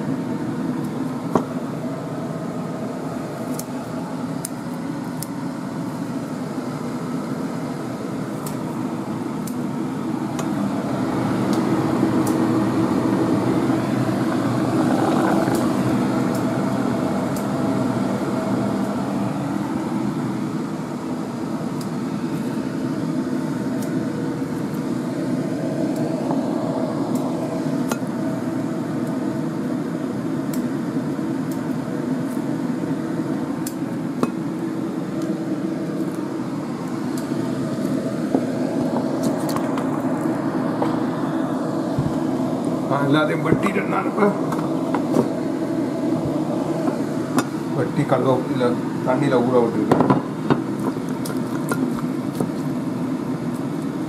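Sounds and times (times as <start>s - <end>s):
steady mechanical hum: 0.0s - 54.0s
scissors snipping stems: 3.4s - 3.8s, 4.4s - 5.4s, 8.4s - 8.7s, 9.4s - 9.7s, 11.5s - 12.4s, 15.4s - 15.7s, 16.3s - 16.5s, 23.8s - 24.8s, 27.1s - 28.1s, 31.5s - 32.4s.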